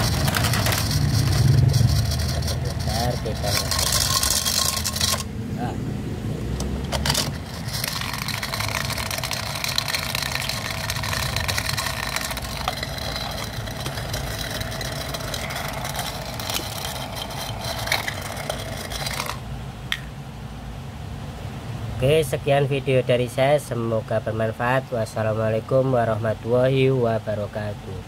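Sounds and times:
toy blender motor whirring: 0.0s - 5.3s, 6.9s - 19.4s.

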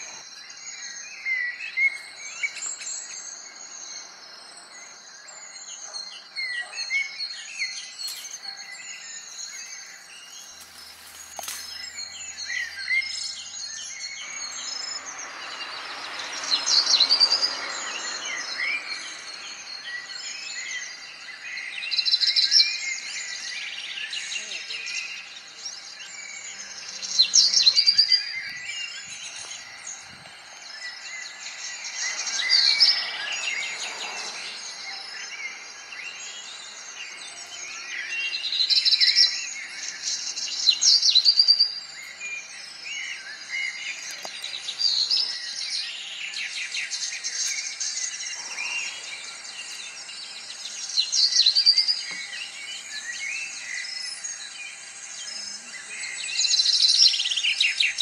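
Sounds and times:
songbirds singing and chirping: 0.0s - 58.0s.

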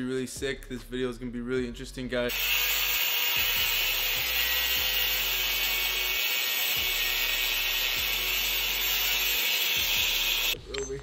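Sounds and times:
angle grinder cutting metal: 2.3s - 10.6s.

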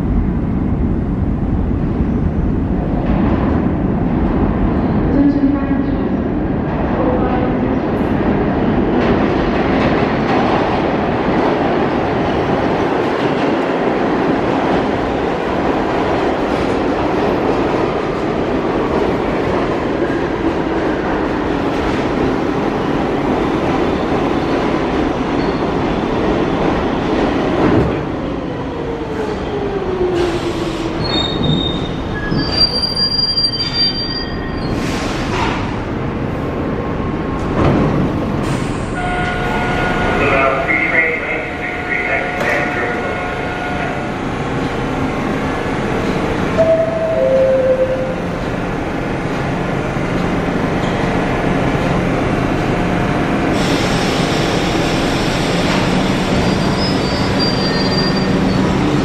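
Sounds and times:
high squeals: 56.4s - 58.7s.

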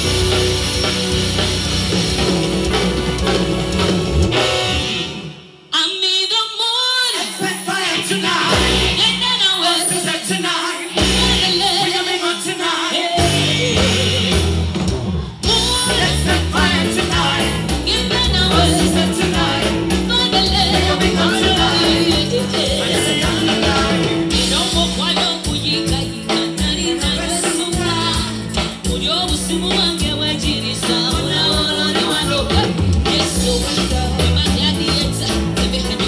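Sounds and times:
bass hits: 0.0s - 5.2s, 13.2s - 25.8s
live band music: 0.0s - 36.0s
woman singing: 5.7s - 14.2s, 15.4s - 36.0s.

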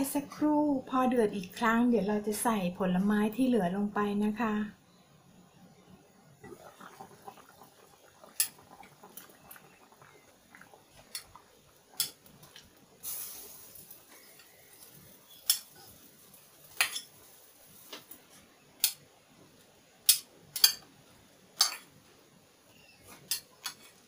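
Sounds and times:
short hiss: 13.0s - 15.9s.

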